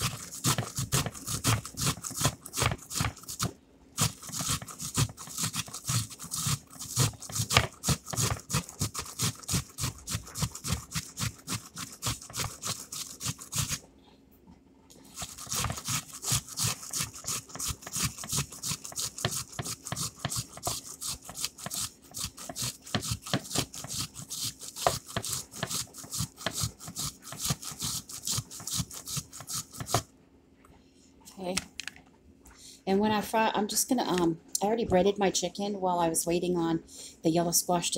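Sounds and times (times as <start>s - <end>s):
onion grating on grater: 0.0s - 13.8s, 15.0s - 30.1s.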